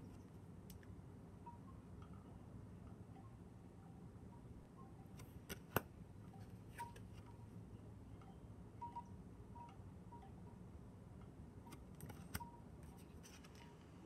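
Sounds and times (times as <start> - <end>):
soft clicks of cards: 5.1 - 7.3, 11.7 - 13.8.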